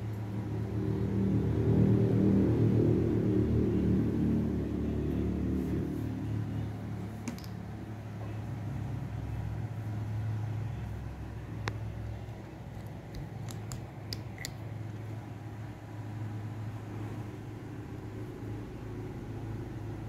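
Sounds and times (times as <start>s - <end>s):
low background hum: 0.0s - 20.0s
handling clicks: 12.8s - 14.6s.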